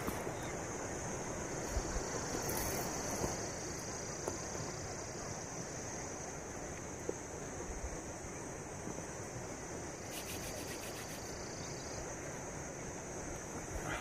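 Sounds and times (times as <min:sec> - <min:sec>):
insects chirring: 0:00.0 - 0:14.0
wind: 0:00.0 - 0:14.0.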